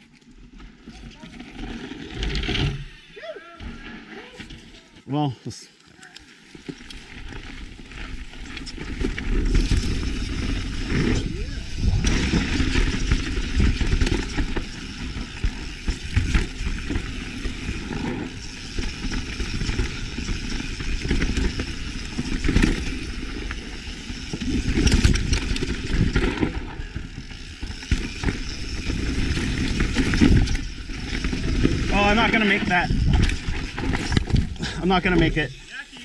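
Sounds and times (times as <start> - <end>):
bike tyre rumble: 0.0 - 4.8, 6.4 - 36.0
bike clattering over rocks: 6.6 - 35.6
wind on microphone: 9.5 - 13.0.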